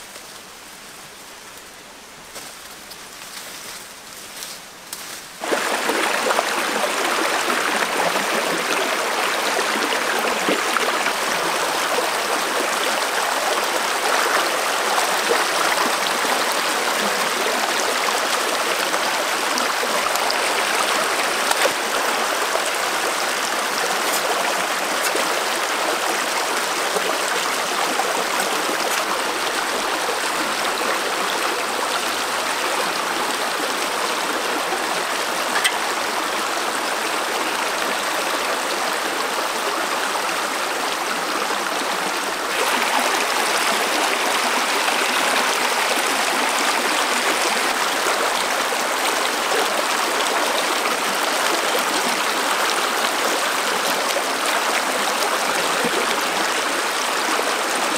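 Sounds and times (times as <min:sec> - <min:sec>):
stream rushing over rocks: 0:05.3 - 0:57.9.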